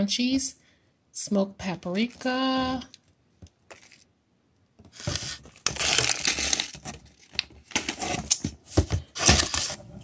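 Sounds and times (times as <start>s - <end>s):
plastic wrappers crinkling: 4.9s - 8.4s.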